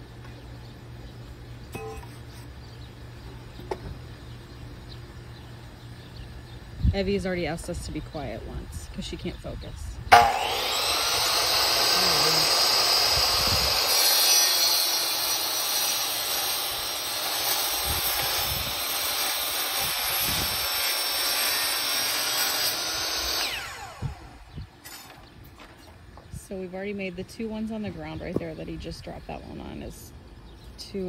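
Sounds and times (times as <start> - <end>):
electric saw cutting wood: 10.1 - 25.2.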